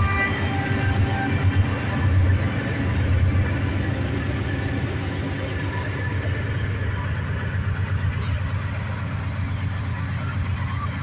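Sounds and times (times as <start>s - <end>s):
diesel locomotives passing: 0.0s - 11.0s.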